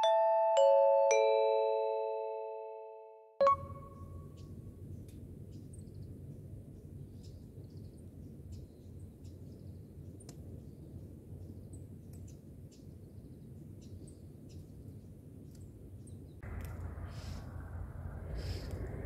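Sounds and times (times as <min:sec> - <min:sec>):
chime ringing: 0:00.0 - 0:04.1
outdoor background noise: 0:03.4 - 0:19.0.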